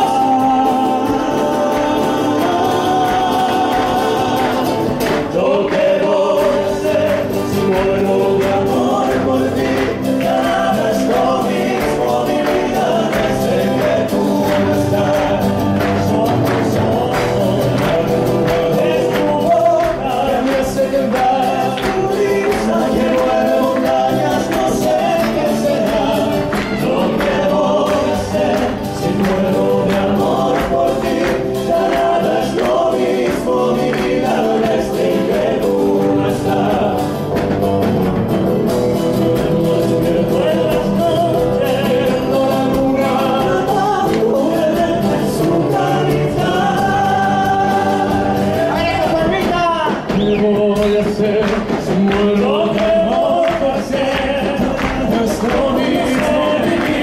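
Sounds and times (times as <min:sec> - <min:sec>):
acoustic guitars: 0:00.0 - 0:57.0
hand percussion: 0:00.0 - 0:57.0
male vocal group singing in harmony: 0:00.0 - 0:57.0.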